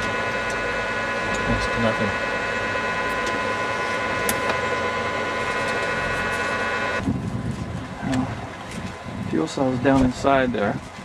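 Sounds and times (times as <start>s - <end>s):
fuel cell system whining: 0.0s - 11.0s.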